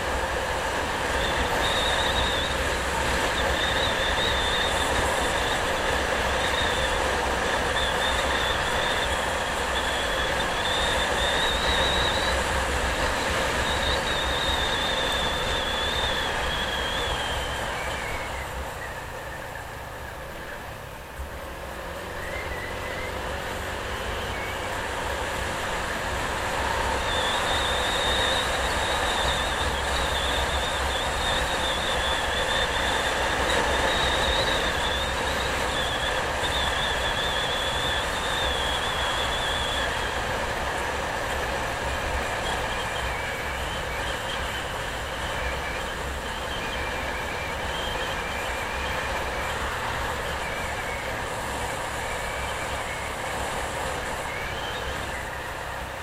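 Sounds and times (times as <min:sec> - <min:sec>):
high wavering squeal: 0:00.0 - 0:20.7, 0:22.0 - 0:56.0
vehicle road and wind noise: 0:00.0 - 0:56.0.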